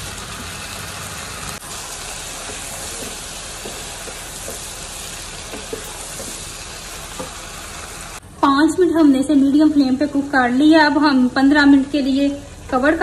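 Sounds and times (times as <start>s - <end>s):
chicken sizzling in pan: 0.0s - 8.2s
wooden spatula scraping and tapping: 2.4s - 6.5s, 7.1s - 7.4s.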